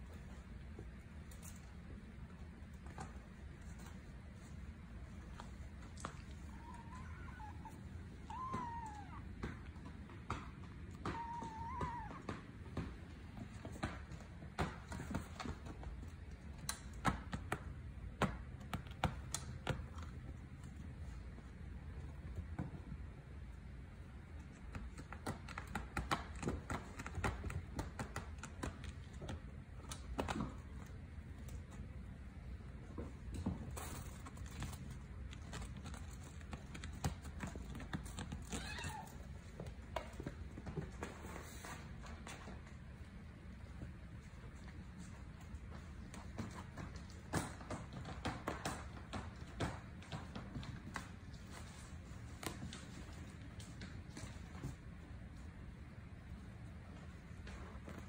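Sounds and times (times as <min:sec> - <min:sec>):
kittens scampering on hard floor: 0:00.0 - 0:23.2, 0:24.2 - 0:58.0
kittens knocking plastic toys: 0:05.9 - 0:20.2
kittens batting plastic toys: 0:33.1 - 0:42.7.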